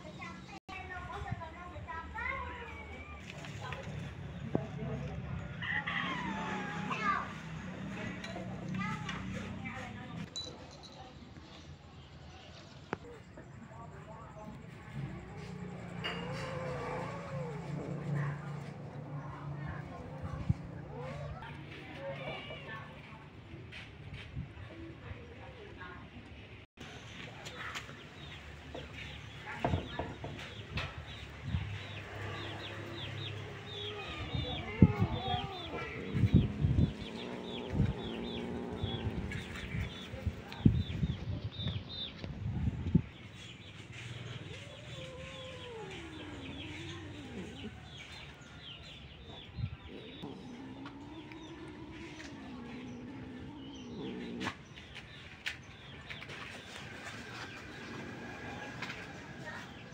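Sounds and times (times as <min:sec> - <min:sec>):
small birds chirping: 0:26.8 - 0:59.9.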